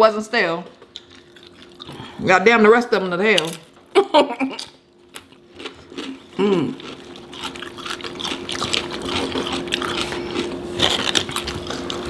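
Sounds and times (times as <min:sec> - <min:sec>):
wet chewing: 0:00.7 - 0:02.1, 0:04.5 - 0:12.0
short hummed vocal sound: 0:01.8 - 0:02.3, 0:06.2 - 0:06.9
crackle of tortilla chips: 0:04.6 - 0:12.0.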